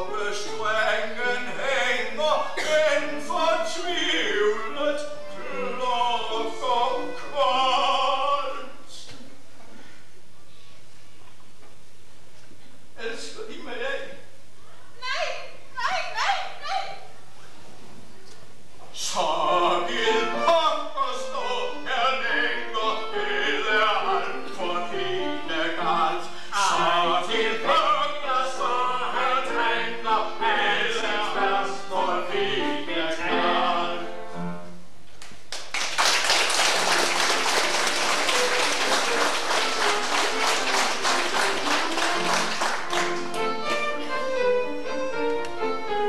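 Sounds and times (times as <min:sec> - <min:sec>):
vaudeville song with accompaniment: 0:00.0 - 0:09.2, 0:18.8 - 0:46.0
audience applauding: 0:35.2 - 0:43.8
violin and piano music: 0:38.4 - 0:46.0.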